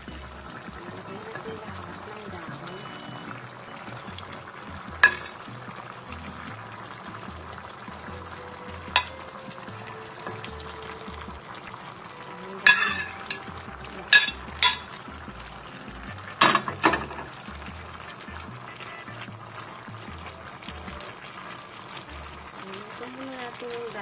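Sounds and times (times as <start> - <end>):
simmering pot hiss: 0.0 - 24.0
spoon knocking and scraping pot: 5.0 - 5.4, 14.2 - 14.9, 16.3 - 17.6.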